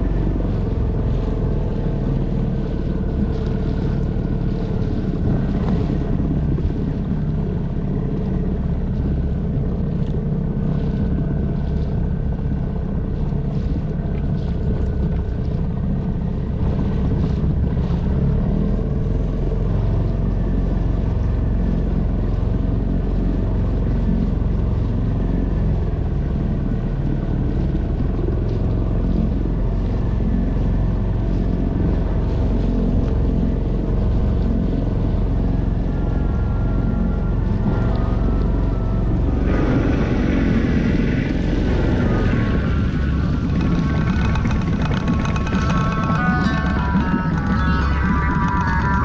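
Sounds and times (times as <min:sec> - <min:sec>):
outboard motor running: 0:00.0 - 0:49.0
water rushing along hull: 0:00.0 - 0:49.0.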